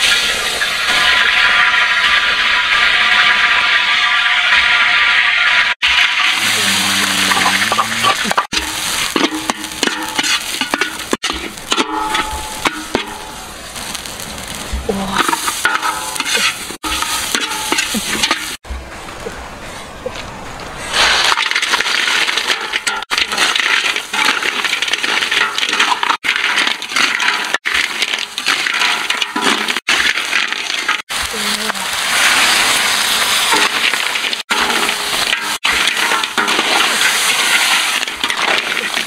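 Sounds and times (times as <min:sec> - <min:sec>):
food sizzling: 0:00.0 - 0:19.4, 0:20.8 - 0:39.0
shells clattering in metal wok: 0:33.5 - 0:39.0.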